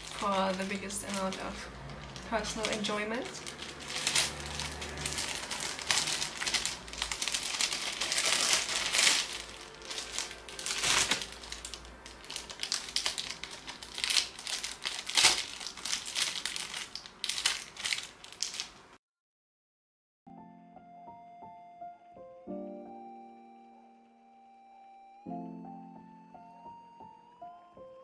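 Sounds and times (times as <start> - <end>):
gift packaging crinkling: 0.0 - 19.0.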